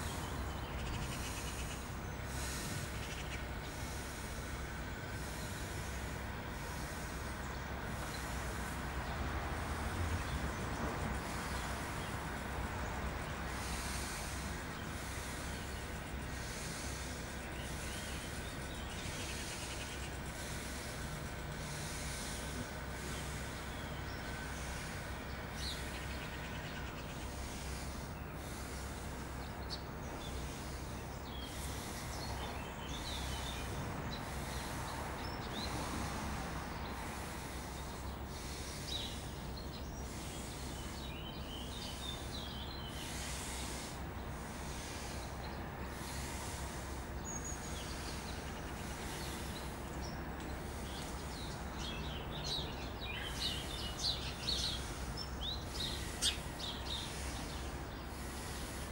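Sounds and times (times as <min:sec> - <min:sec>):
birds chirping faintly: 0:00.0 - 0:58.9
rhythmic forceful breathing: 0:00.0 - 0:58.9
room hiss and hum: 0:00.0 - 0:58.9.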